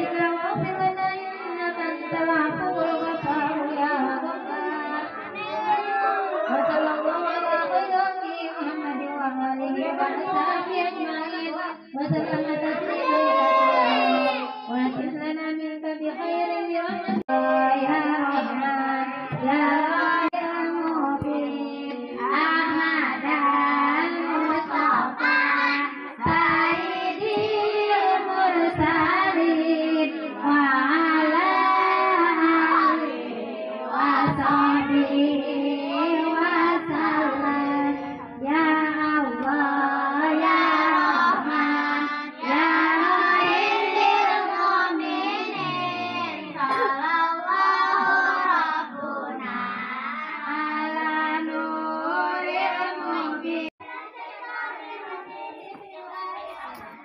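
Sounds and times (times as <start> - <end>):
woman singing through microphone: 0.0 - 5.6, 6.4 - 53.7
children singing together: 0.0 - 15.3, 15.9 - 57.0.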